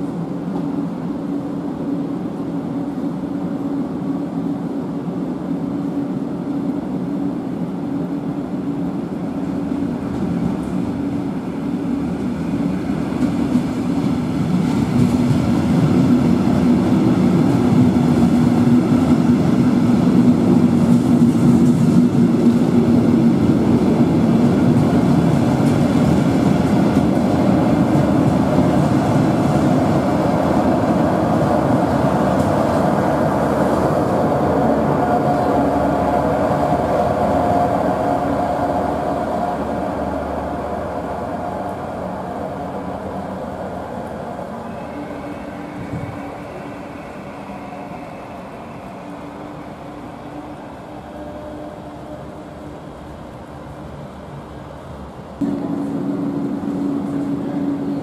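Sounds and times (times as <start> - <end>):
train rolling into platform: 0.0 - 58.0
steady hum: 55.4 - 58.0.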